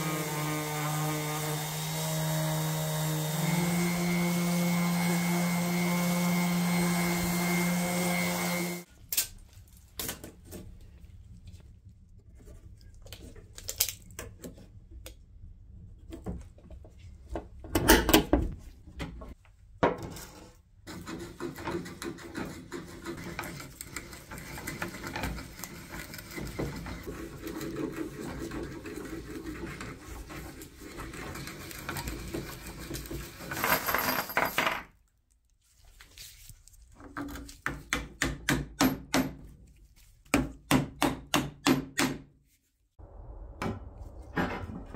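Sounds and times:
electric drill boring into wood: 0.0s - 8.8s
orbital sander on wood: 0.0s - 8.9s.

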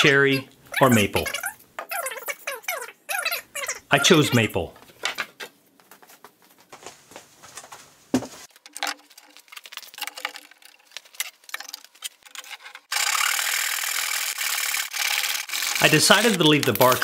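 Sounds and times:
tape measure and wood clicks: 15.6s - 17.0s.

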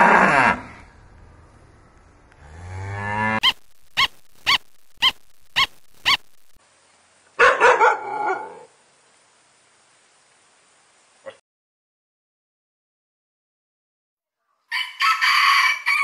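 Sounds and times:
cow mooing: 2.4s - 3.4s
short high-pitched animal calls: 3.4s - 6.6s.

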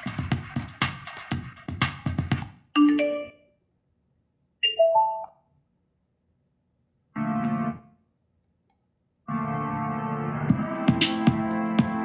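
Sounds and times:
keyboard music on car radio: 9.3s - 12.0s.

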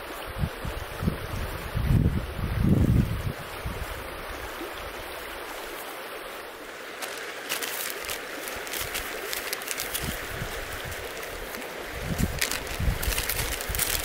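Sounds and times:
river flowing: 3.3s - 14.0s
hands crackling dry material: 7.0s - 14.0s.

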